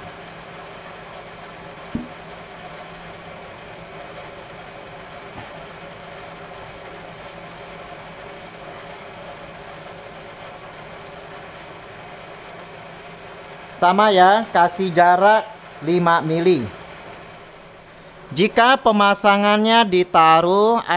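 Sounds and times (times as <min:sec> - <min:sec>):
low background hum: 0:00.0 - 0:20.9
plastic cartridge knocking housing: 0:02.0 - 0:02.2.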